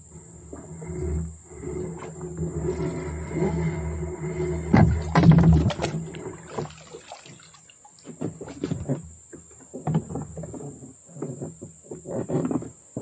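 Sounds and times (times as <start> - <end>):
outboard motor rumbling: 0.0 - 13.0
water splashing and dripping: 5.6 - 8.2.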